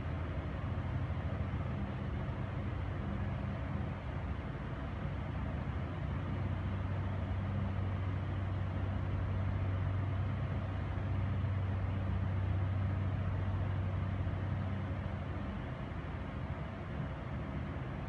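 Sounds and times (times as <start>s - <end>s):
background noise: 0.0s - 18.0s
low mechanical hum: 0.0s - 18.0s.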